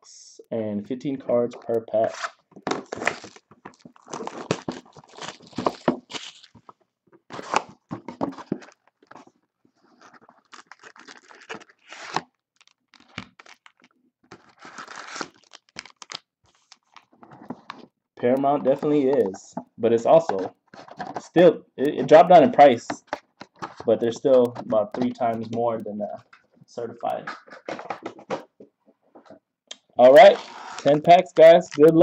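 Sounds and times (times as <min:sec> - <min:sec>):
foil packs rustling: 0:02.8 - 0:09.2, 0:10.0 - 0:16.9
cardboard box tearing open: 0:04.0 - 0:06.6, 0:07.3 - 0:08.8, 0:14.4 - 0:15.9.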